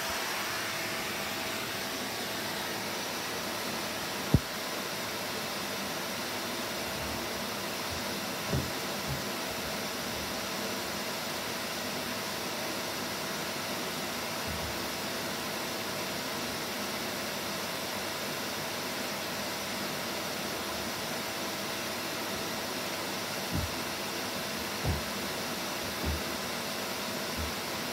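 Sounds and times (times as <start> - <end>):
vacuum cleaner running: 0.0 - 27.9
soft low knocks: 8.5 - 9.4, 23.5 - 23.8, 24.8 - 25.2, 25.9 - 26.4.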